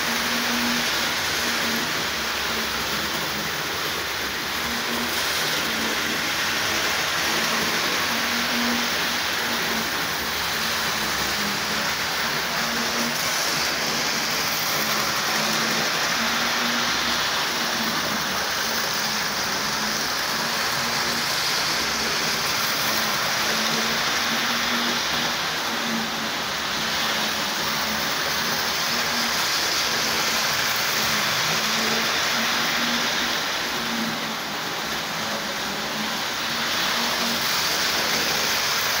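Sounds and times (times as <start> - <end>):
model train whirring on rails: 0.0 - 39.0.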